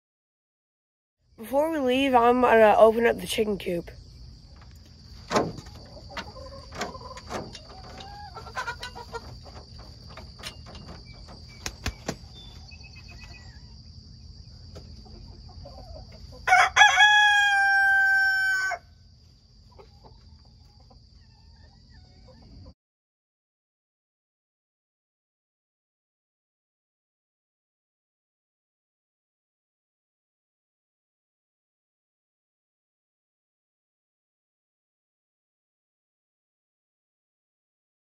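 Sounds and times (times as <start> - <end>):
crickets chirring: 1.3 - 22.7
chickens clucking: 3.3 - 18.3, 19.2 - 22.8
rooster crowing: 16.4 - 19.0.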